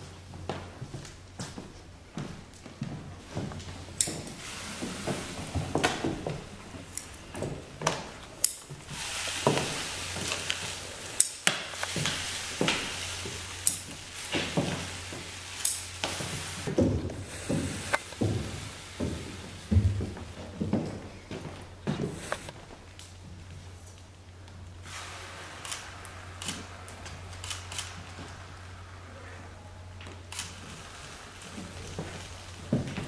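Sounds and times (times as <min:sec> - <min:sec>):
salt pouring onto wooden floor: 0:04.0 - 0:07.6, 0:08.6 - 0:20.1, 0:24.8 - 0:29.0, 0:30.2 - 0:33.0.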